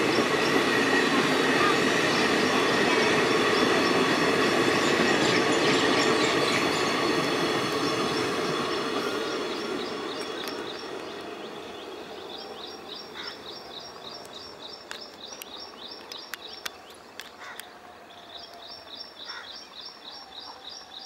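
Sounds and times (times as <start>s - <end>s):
train rumble: 0.0s - 21.0s
small birds chirping: 7.8s - 21.0s.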